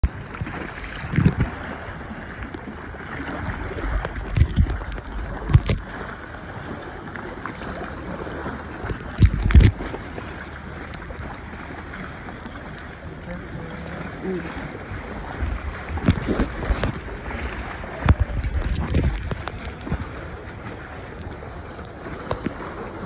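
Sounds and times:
water rushing around kayak: 0:00.0 - 0:23.0
wind: 0:00.0 - 0:23.0.

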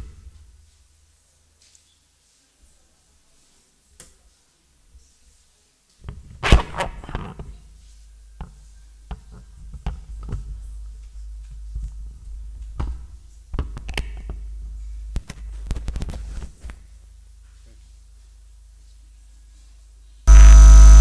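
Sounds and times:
steady low hum: 0:20.3 - 0:21.0.

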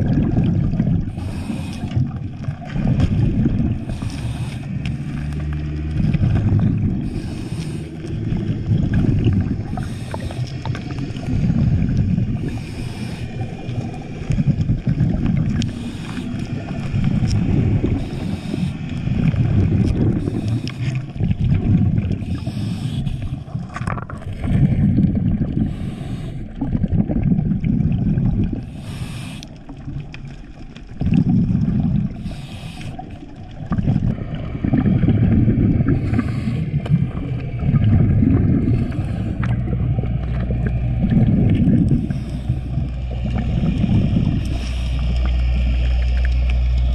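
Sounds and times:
gurgling exhaust bubbles: 0:00.0 - 0:46.9
diver inhaling through regulator: 0:01.0 - 0:02.3, 0:03.1 - 0:05.7, 0:06.4 - 0:26.8, 0:28.5 - 0:29.8, 0:31.3 - 0:46.2.

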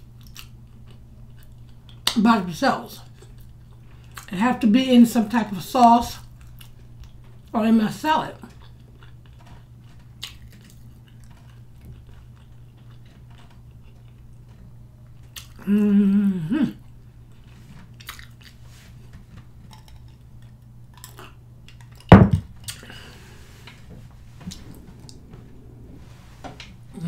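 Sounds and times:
person chewing: 0:00.0 - 0:02.1, 0:08.5 - 0:15.8, 0:16.8 - 0:18.6, 0:19.6 - 0:22.0
steady low hum: 0:00.0 - 0:27.0
woman humming mmm: 0:15.6 - 0:16.9.

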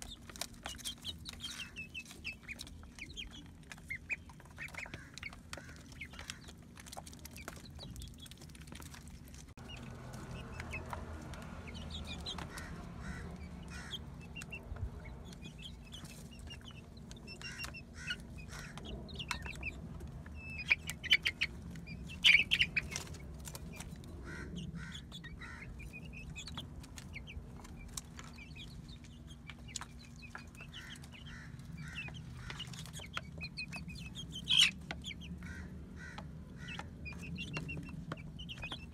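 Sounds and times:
chicks clucking and cheeping: 0:00.0 - 0:38.9.

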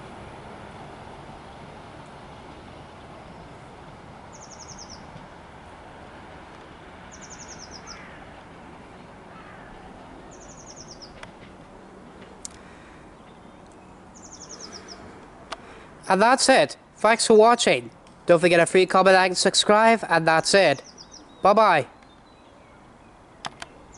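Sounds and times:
diesel train rumble: 0:00.0 - 0:21.4
songbird trilling: 0:04.3 - 0:05.1, 0:07.1 - 0:08.3, 0:10.3 - 0:11.2, 0:13.2 - 0:15.1, 0:20.7 - 0:23.9.

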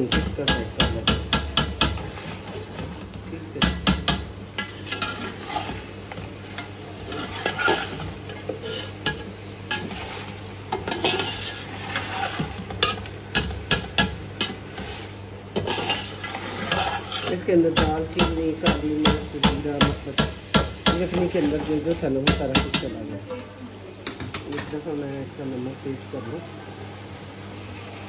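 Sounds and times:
steady sizzle: 0:00.0 - 0:28.0
metal spoon scraping a pot: 0:04.6 - 0:05.8, 0:06.6 - 0:13.8, 0:14.4 - 0:18.8.

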